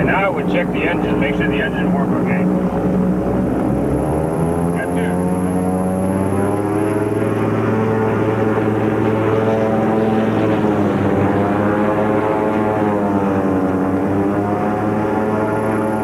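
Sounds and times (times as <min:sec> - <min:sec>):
propeller aircraft engine running: 0:00.0 - 0:16.0.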